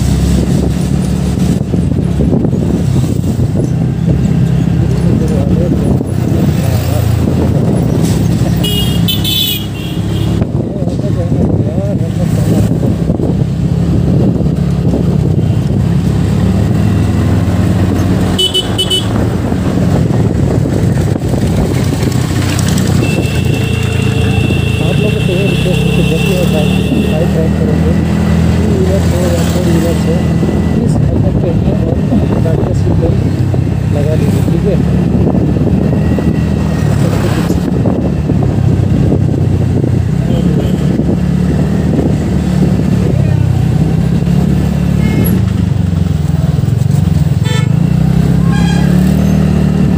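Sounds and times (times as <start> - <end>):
wind over microphone: 0.0 - 8.6, 10.3 - 18.3, 19.0 - 23.6, 27.8 - 47.4
road noise: 0.0 - 49.9
vehicle horn beeps: 8.6 - 10.4, 18.4 - 19.2, 23.0 - 27.1, 48.4 - 49.0.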